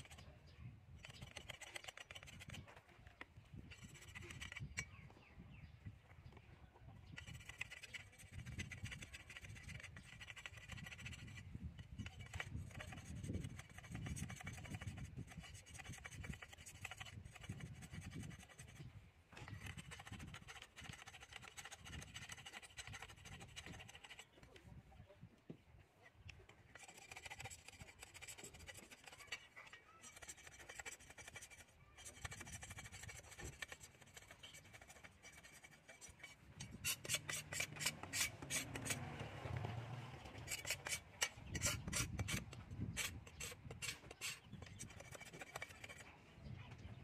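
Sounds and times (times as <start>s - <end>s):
faint scraping of bamboo rod: 0.0s - 5.2s, 7.0s - 24.8s, 26.0s - 46.2s.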